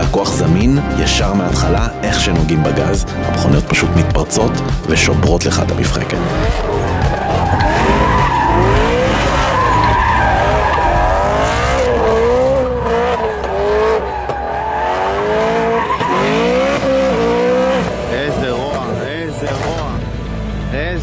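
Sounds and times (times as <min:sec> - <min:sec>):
tyres squealing and skidding: 0:04.9 - 0:21.0
car engine revving hard: 0:05.8 - 0:20.6.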